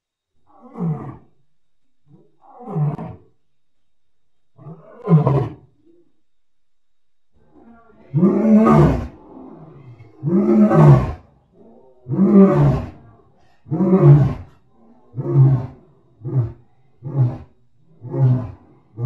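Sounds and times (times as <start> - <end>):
lion roaring: 0.5 - 1.3, 2.1 - 3.3, 4.6 - 5.7, 7.4 - 19.0.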